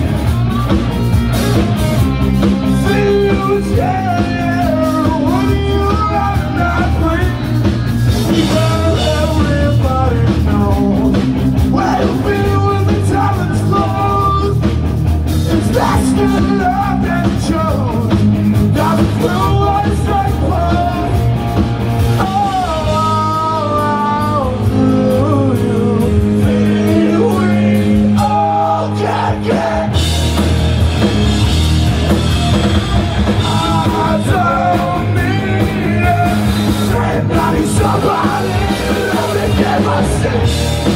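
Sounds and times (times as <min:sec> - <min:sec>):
punk rock band playing live: 0:00.0 - 0:40.9
person singing: 0:22.2 - 0:30.0, 0:33.4 - 0:40.9.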